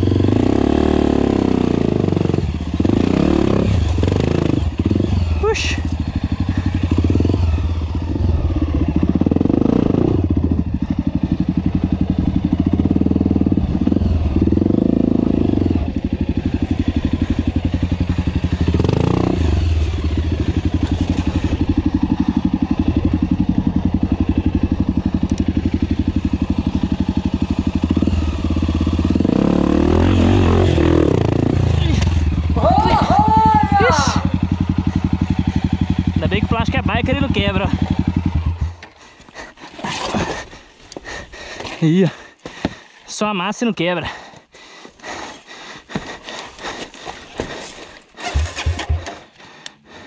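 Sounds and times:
motorcycle engine revving: 0.0 - 40.5, 47.4 - 50.0.

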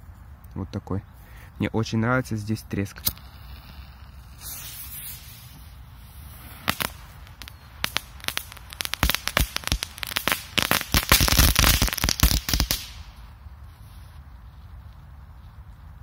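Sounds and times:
firecracker crackling: 2.7 - 14.2.

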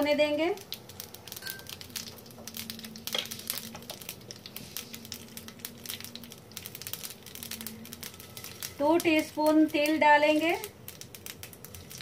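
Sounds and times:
seeds crackling in hot oil: 0.0 - 12.0.

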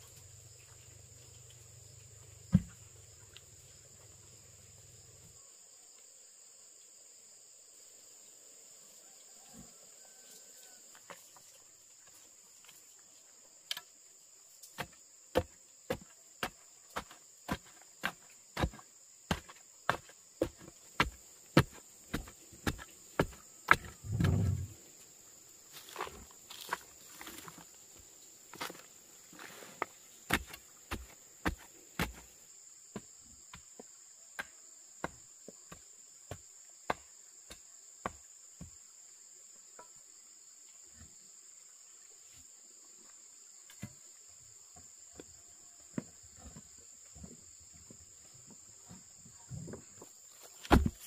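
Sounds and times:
insects chirring: 0.0 - 51.0
loud thump: 24.0 - 24.8.

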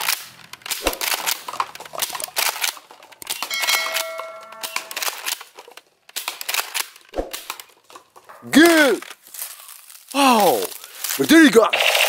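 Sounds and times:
plastic cups clattering down: 0.0 - 5.8
short ringing ding: 3.5 - 5.0.

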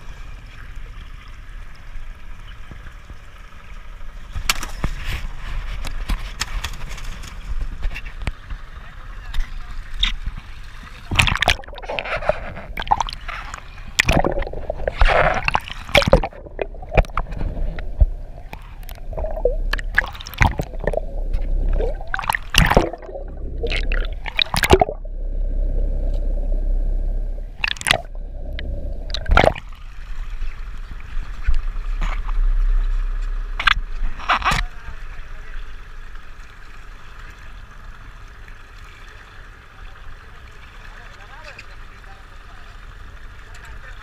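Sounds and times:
sea water sloshing and gurgling: 0.0 - 44.0
sharp water splashes: 11.0 - 25.1, 27.4 - 32.4.

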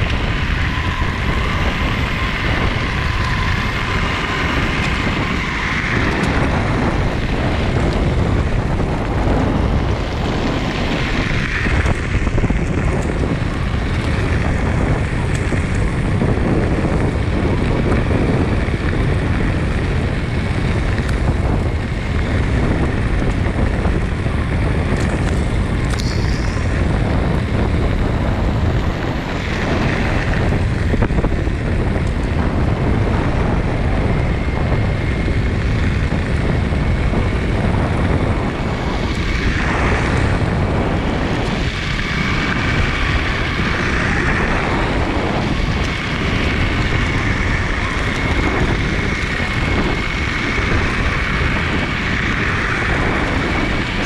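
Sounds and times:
skateboard rolling on gravel: 0.0 - 54.0
wind noise on microphone: 0.0 - 54.0
faint high whine: 24.5 - 31.6.

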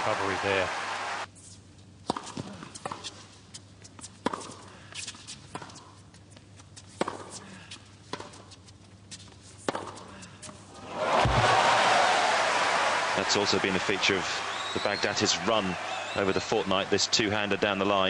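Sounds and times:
tennis ball hit by rackets: 9.7 - 10.0.

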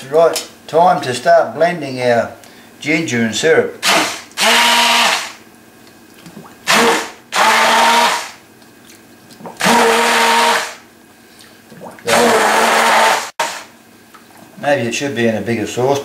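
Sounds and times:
stick blender motor whirring: 3.8 - 5.4, 6.7 - 8.4, 9.6 - 10.8, 12.1 - 13.7.

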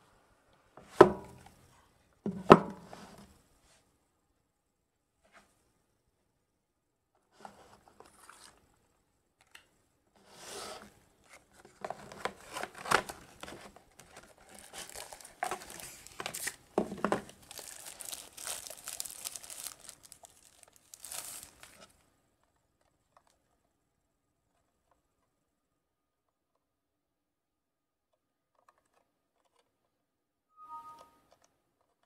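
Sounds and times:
cardboard box being opened: 11.7 - 21.9
plastic wrap rustling and tearing: 11.8 - 22.0.

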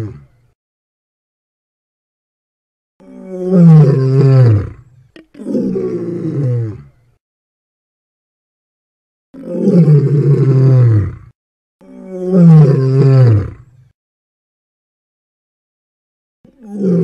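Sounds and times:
big cat roaring: 3.0 - 4.8, 5.4 - 6.9, 9.4 - 13.7, 16.5 - 17.0.

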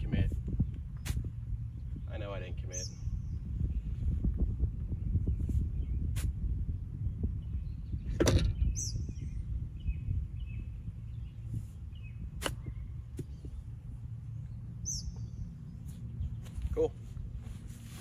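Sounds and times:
wind on microphone: 0.0 - 18.0
bird chirps: 7.3 - 16.9
golf club hitting ball: 12.4 - 13.3.

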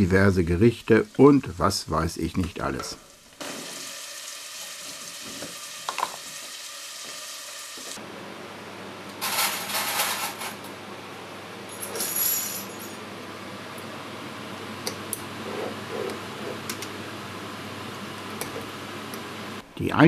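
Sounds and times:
steady hiss: 0.0 - 8.0.

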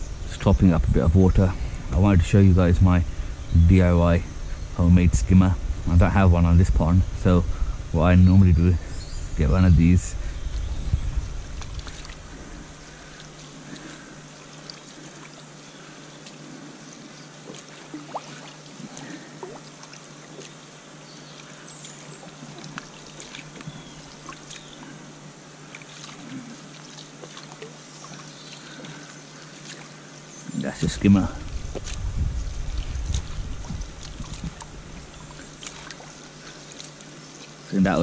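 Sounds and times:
low steady hum: 0.0 - 38.0
pond water trickling and lapping: 9.4 - 38.0
small splashes: 11.5 - 16.7, 17.4 - 30.6, 31.3 - 37.8.

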